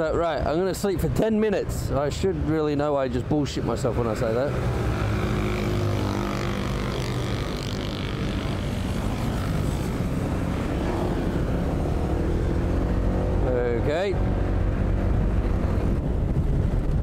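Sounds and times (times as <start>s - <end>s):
road and wind noise: 0.0s - 17.0s
scooter engine humming: 4.5s - 16.7s.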